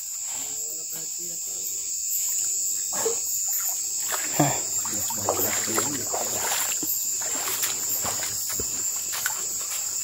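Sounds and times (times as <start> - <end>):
crickets droning: 0.0 - 10.0
water sloshing and splashing: 3.0 - 10.0.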